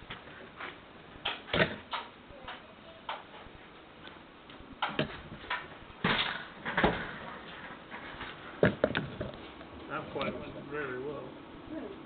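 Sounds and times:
handling knocks and clicks: 4.0s - 7.2s.

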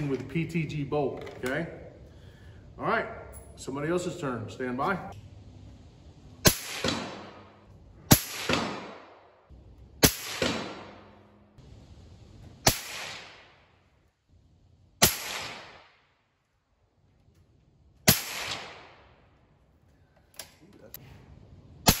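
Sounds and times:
rifle shots echoing: 6.4s - 11.4s, 12.6s - 13.8s, 15.0s - 16.2s, 18.0s - 19.3s.

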